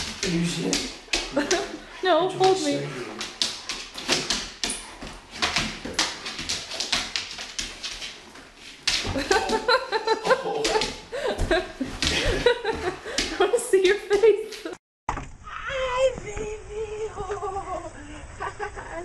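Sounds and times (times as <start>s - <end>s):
dog claws scrabbling on hardwood floor: 0.0s - 9.8s.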